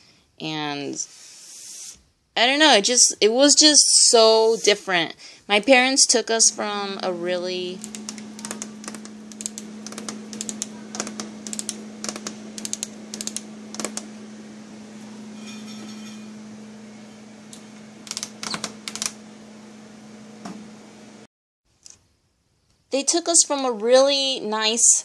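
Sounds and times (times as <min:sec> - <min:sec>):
steady low hum: 0:04.4 - 0:21.3.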